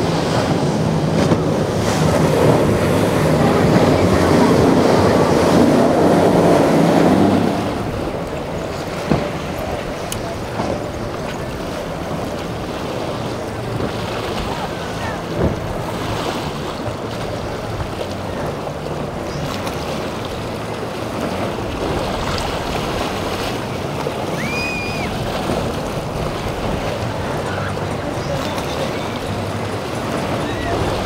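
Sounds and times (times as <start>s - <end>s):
boat engines running low: 0.0s - 31.0s
surf rushing: 0.0s - 31.0s
wind: 0.0s - 31.0s
short high whistle: 24.4s - 25.1s.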